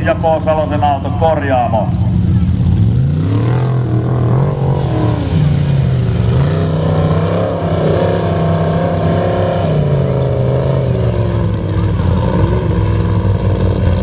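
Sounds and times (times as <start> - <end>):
buggy engine revving: 0.0 - 14.0.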